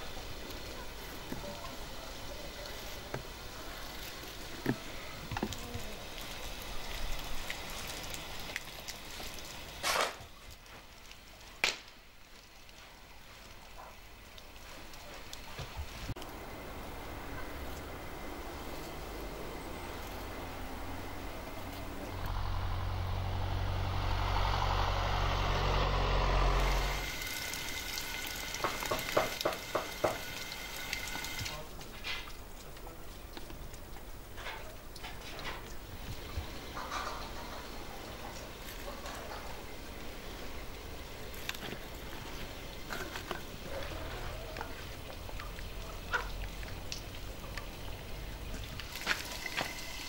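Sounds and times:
wood fire popping: 0.3 - 16.4
engine rumbling: 16.1 - 31.8, 32.4 - 49.8
pan frying hiss: 26.4 - 31.7, 48.8 - 50.0
wet clicks and drips in bowl: 42.9 - 49.0.

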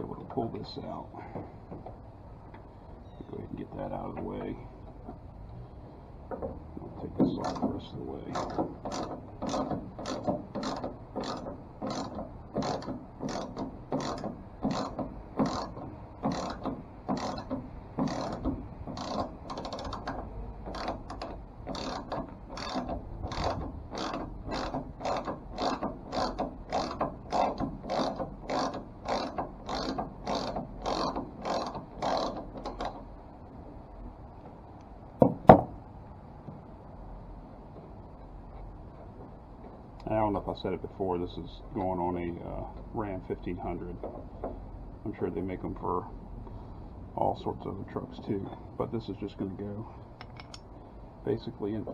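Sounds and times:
socket ratchet clicking: 8.3 - 33.0.

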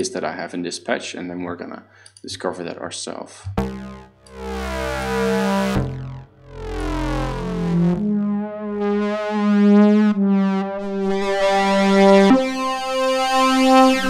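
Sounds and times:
synthesizer pad with vibrato: 3.5 - 14.0.

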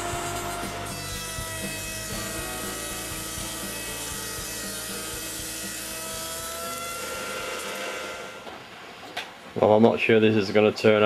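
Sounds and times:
planer machine whine: 0.0 - 8.6
wood cutting hiss: 0.0 - 8.6.

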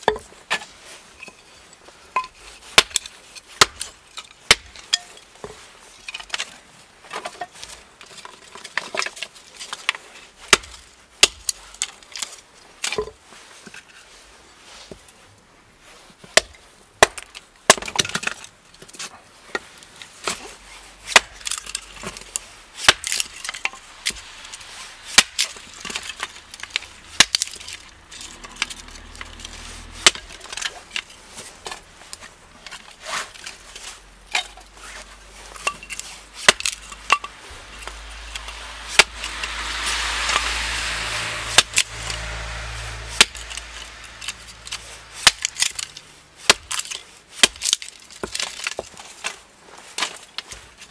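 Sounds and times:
hatchet chopping wood: 2.2 - 4.9, 10.5 - 12.0, 16.4 - 18.4, 21.1 - 21.8, 22.8 - 24.2, 25.1 - 27.8, 28.5 - 30.8, 35.6 - 39.5, 43.1 - 43.6, 44.2 - 49.0
rushing noise: 21.8 - 33.6, 35.0 - 46.5.

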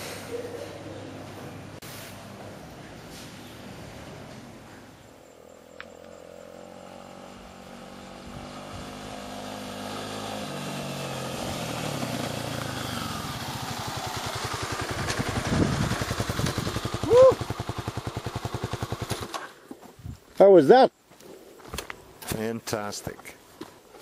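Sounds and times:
dirt bike engine: 1.2 - 20.1.

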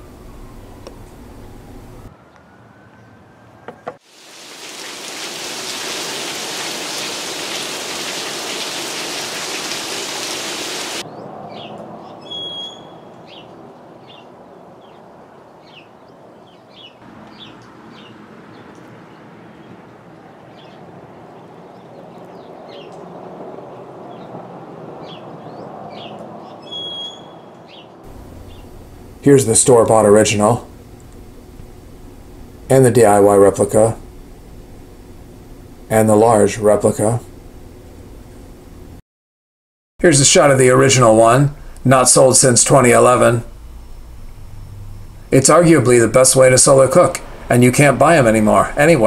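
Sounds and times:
steady rain hiss: 4.0 - 11.0, 28.1 - 39.0, 40.1 - 49.0.

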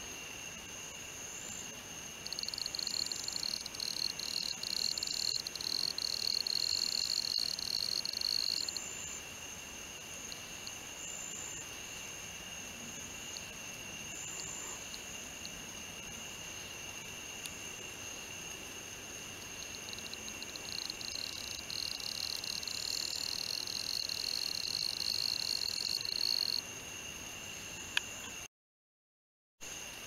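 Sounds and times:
insects trilling: 0.0 - 28.5
loud buzzing insect trill: 2.2 - 9.2, 19.5 - 26.6.

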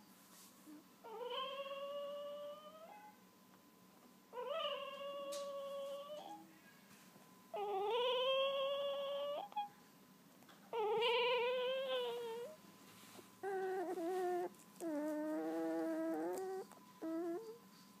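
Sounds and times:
puppy crying: 1.0 - 3.1, 4.3 - 6.4, 7.5 - 9.7, 10.7 - 12.6, 13.4 - 17.7.

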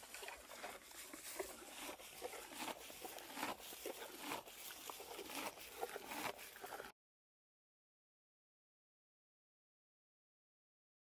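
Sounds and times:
deer chewing grass: 0.0 - 6.9.

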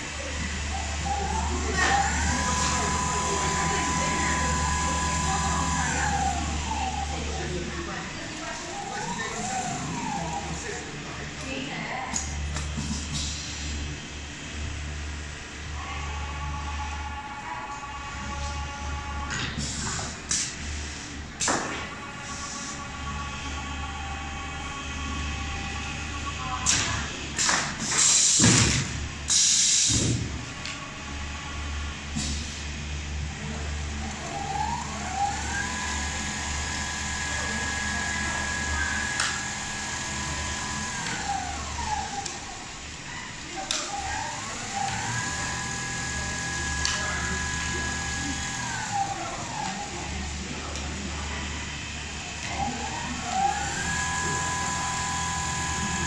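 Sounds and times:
sewing machine hum: 0.0 - 11.4, 33.3 - 50.5, 51.3 - 56.0
rising motor whine: 0.4 - 11.0, 33.5 - 42.6, 44.3 - 50.2.

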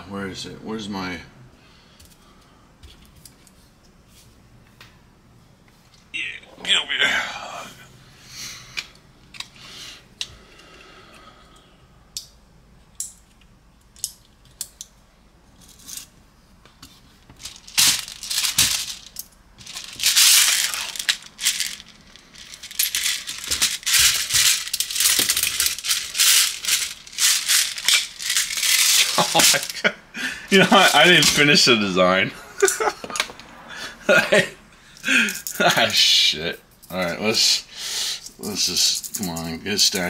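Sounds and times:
plastic pellets rattling: 17.4 - 29.8.

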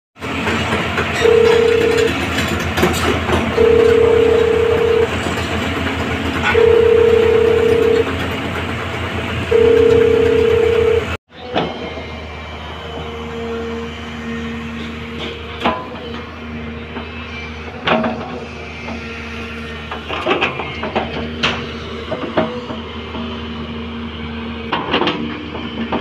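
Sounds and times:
track clatter: 0.2 - 13.2, 24.6 - 26.0
excavator diesel engine running: 0.2 - 26.0
two-tone travel alarm beeps: 1.2 - 2.1, 3.6 - 5.1, 6.5 - 8.1, 9.5 - 11.2.

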